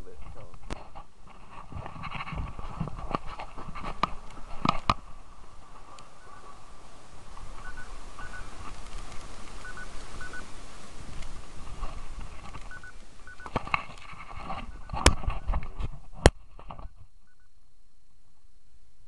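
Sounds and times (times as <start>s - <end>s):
rustling handling noise: 0.0s - 17.1s
mobile phone double beeps: 7.6s - 8.5s, 9.6s - 10.4s, 12.7s - 13.6s, 17.2s - 17.6s.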